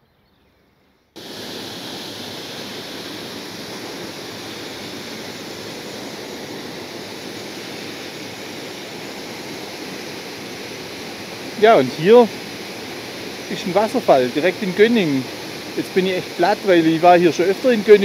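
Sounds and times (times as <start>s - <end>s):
water falling: 1.2s - 18.0s.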